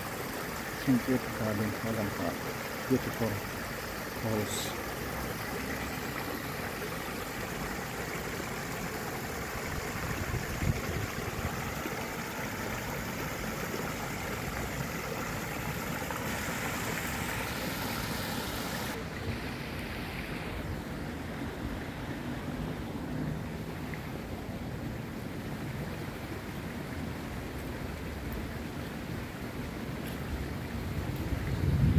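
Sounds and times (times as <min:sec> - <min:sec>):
water cascade splashing into pond: 0:00.0 - 0:20.7.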